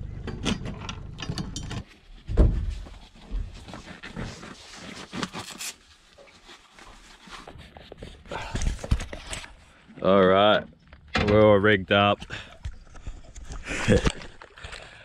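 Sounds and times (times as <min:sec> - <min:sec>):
dive gear handling noise: 0:07.4 - 0:09.7.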